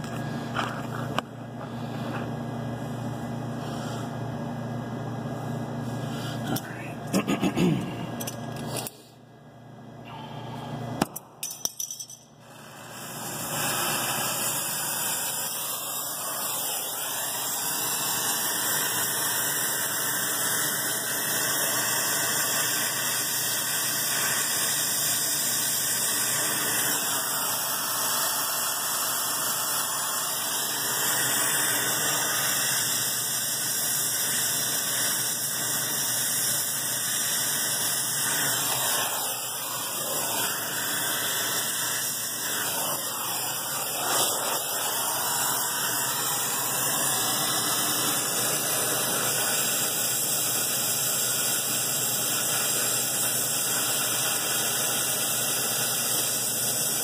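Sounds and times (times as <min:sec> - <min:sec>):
gas torch hissing: 0:12.4 - 0:57.0.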